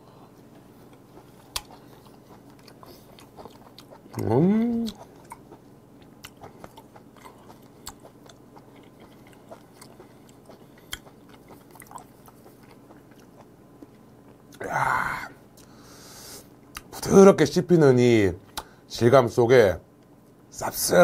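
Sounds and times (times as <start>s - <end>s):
person chewing wetly: 0.5s - 14.6s.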